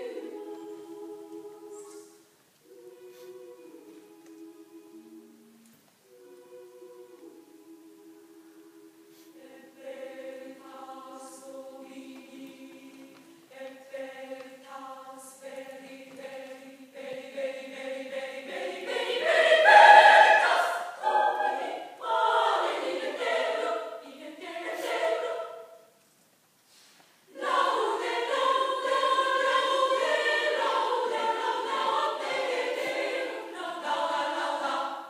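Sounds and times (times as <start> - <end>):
women's choir singing: 0.0 - 26.0, 27.3 - 35.0.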